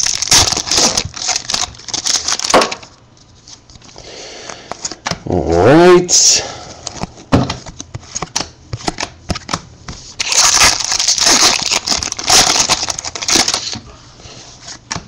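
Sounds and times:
foil wrapper tearing and crinkling: 0:00.0 - 0:02.9, 0:10.2 - 0:13.8.

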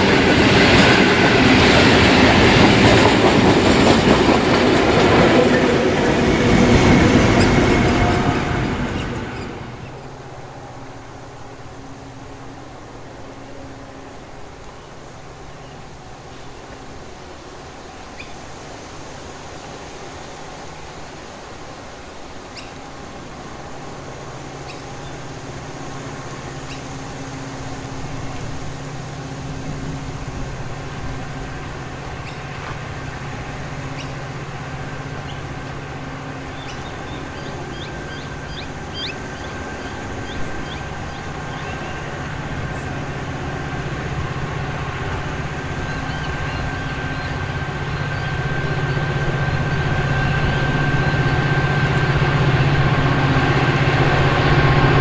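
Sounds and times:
diesel locomotive engine drone: 0:00.0 - 0:55.0.

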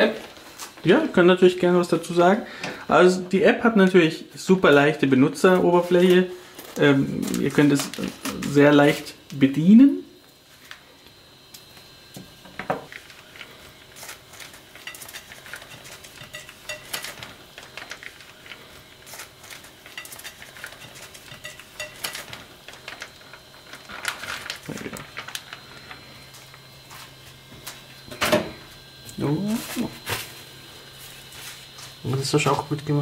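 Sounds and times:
plastic bag crinkling: 0:05.7 - 0:09.5, 0:12.9 - 0:28.0.

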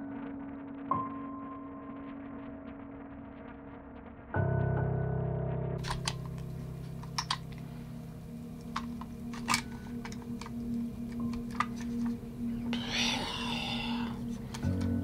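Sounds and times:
low background music drone: 0:00.0 - 0:15.0.

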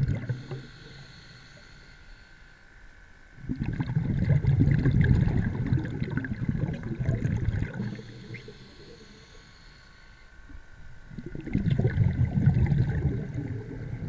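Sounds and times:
underwater brook water churning: 0:00.0 - 0:01.2, 0:03.4 - 0:09.8, 0:11.0 - 0:14.0.

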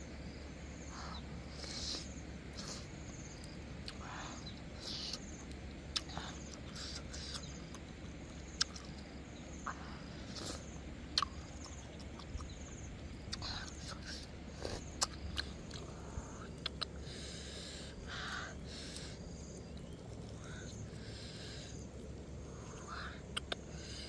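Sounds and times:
insects chirring: 0:00.0 - 0:24.0
chewing and mouth clicks: 0:05.1 - 0:09.1, 0:09.7 - 0:17.0, 0:23.2 - 0:23.7.

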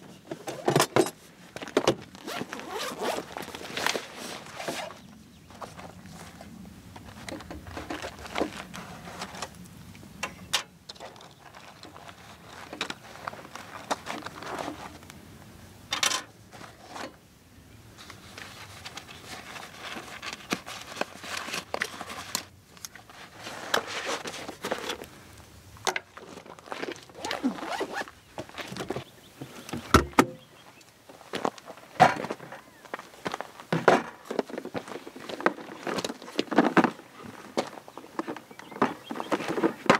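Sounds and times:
fabric rustling: 0:01.6 - 0:05.0, 0:26.1 - 0:29.0
zipper of fabric bag: 0:02.2 - 0:03.5, 0:27.2 - 0:28.1.

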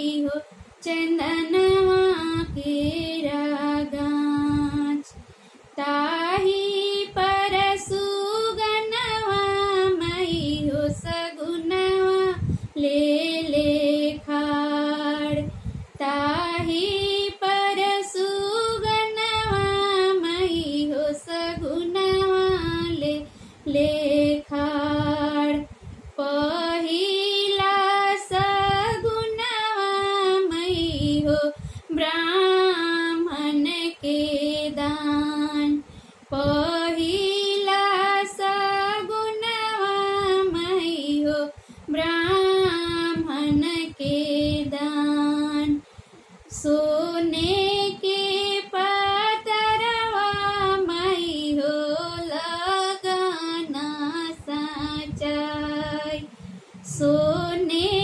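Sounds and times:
woman singing unaccompanied: 0:00.0 - 0:58.0.

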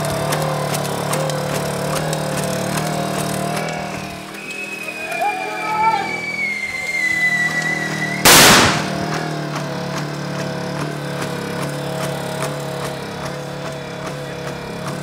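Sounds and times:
engine drone: 0:00.0 - 0:15.0
falling whistle: 0:04.4 - 0:09.0
loud blast: 0:08.2 - 0:09.3.

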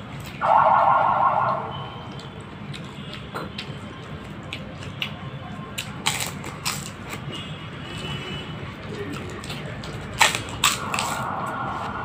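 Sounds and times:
crispy shells cracking and crunching: 0:02.1 - 0:07.2, 0:09.1 - 0:11.3.

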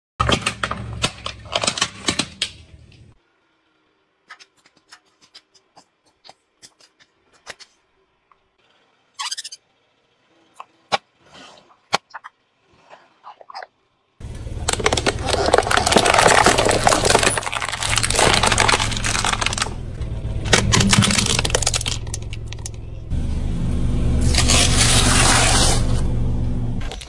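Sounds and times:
tyre crushing plastic: 0:14.2 - 0:22.8
low rumble: 0:14.2 - 0:26.8.

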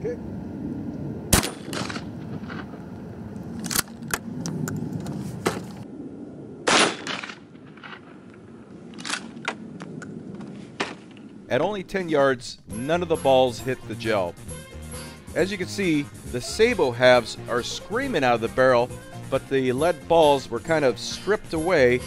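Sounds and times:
shotgun bang: 0:01.3 - 0:02.1, 0:06.6 - 0:08.0.

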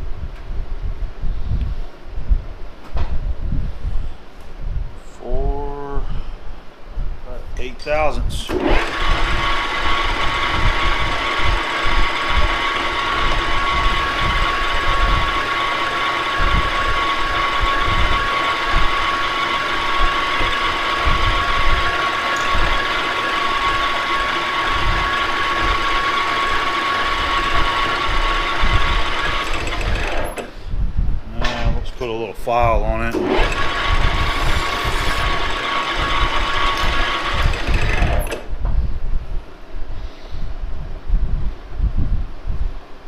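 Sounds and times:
metal lathe running: 0:08.5 - 0:30.5, 0:33.1 - 0:38.5.

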